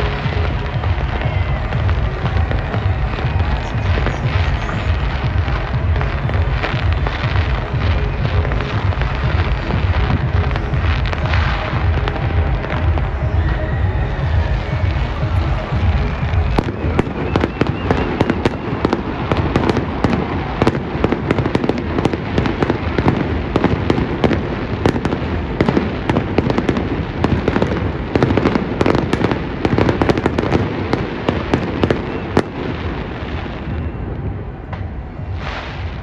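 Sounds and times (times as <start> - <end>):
fireworks bangs and crackles: 0.0 - 36.0.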